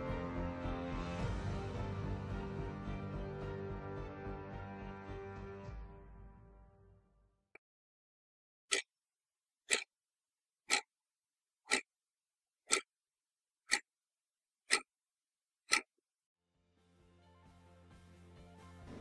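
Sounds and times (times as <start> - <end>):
clock ticking: 9.7 - 9.9, 10.7 - 10.9, 11.7 - 11.9, 12.7 - 12.9, 13.7 - 13.9, 14.7 - 14.9, 15.7 - 15.9.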